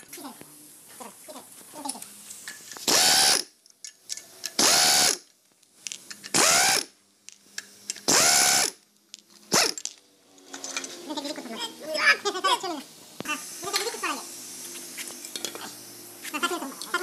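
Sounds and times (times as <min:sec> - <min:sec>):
air wrench driving bolts: 0:02.5 - 0:08.8, 0:09.5 - 0:11.1.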